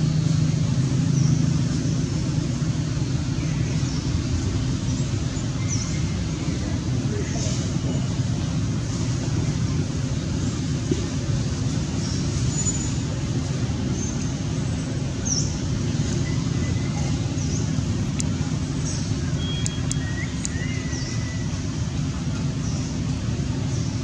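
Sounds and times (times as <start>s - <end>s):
faint high chirps: 19.0s - 21.6s
sharp clicks: 19.6s - 20.6s.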